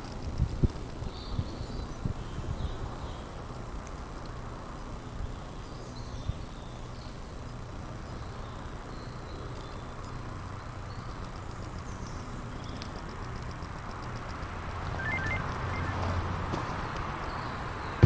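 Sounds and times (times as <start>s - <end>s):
faint clicks: 3.4s - 4.4s, 10.9s - 17.1s
high-pitched whine: 14.6s - 16.7s
faint bird chirps: 14.8s - 16.2s.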